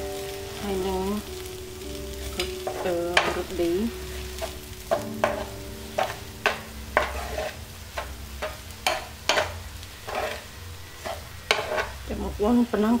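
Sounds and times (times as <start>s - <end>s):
low sizzle of frying oil: 0.0s - 13.0s
metal ladle scraping frying pan: 4.1s - 12.1s.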